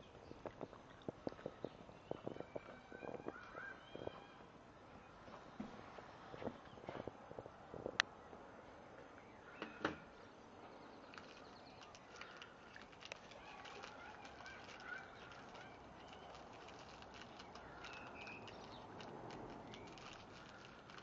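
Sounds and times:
puppy teeth crunching ice: 11.1s - 21.0s.

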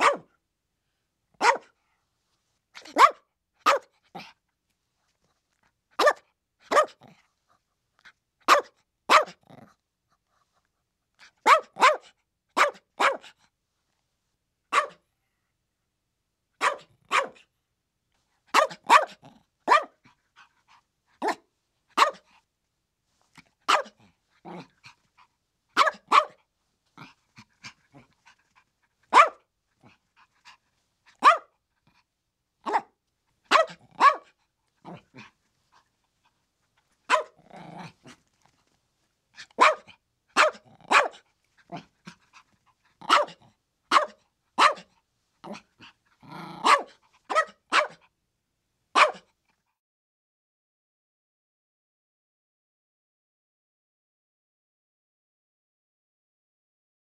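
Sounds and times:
small dog yapping: 0.0s - 0.3s, 1.4s - 1.7s, 2.8s - 4.3s, 6.0s - 7.1s, 8.5s - 9.4s, 11.2s - 13.3s, 14.7s - 15.0s, 16.6s - 17.4s, 18.5s - 19.9s, 21.2s - 21.4s, 22.0s - 22.4s, 23.7s - 25.0s, 25.8s - 26.4s, 29.1s - 30.0s, 31.1s - 31.5s, 32.7s - 32.9s, 33.5s - 35.3s, 37.1s - 38.2s, 39.4s - 42.4s, 43.0s - 45.6s, 46.4s - 48.0s, 49.0s - 49.3s.

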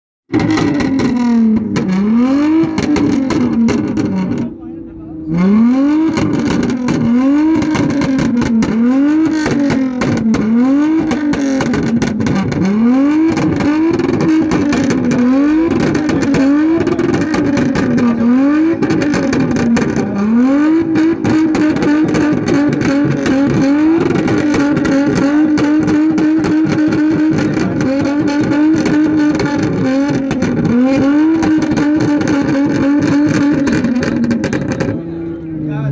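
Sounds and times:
exhaust pops and bangs: 0.3s - 4.5s, 6.0s - 35.0s
car engine revving: 0.3s - 35.9s.

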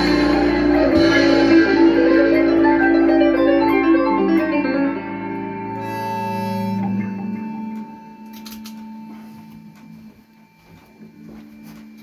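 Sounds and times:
electric guitar notes: 0.0s - 10.2s
low amplifier hum: 0.0s - 12.0s.

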